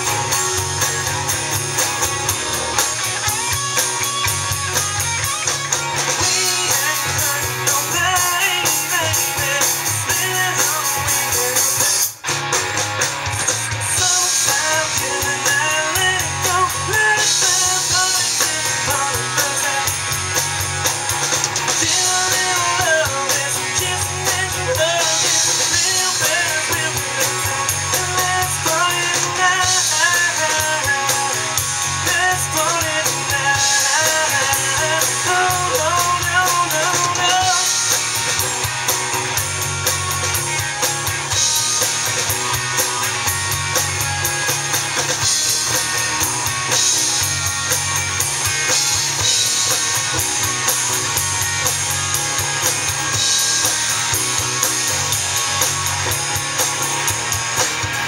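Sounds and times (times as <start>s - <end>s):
live rock band playing: 0.0s - 58.0s
melodic lead line: 0.0s - 58.0s.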